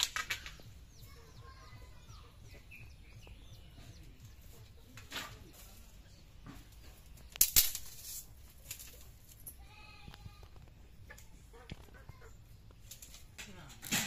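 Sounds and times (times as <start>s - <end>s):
bamboo sticks clattering: 0.0s - 0.7s, 4.9s - 9.8s, 12.6s - 14.0s.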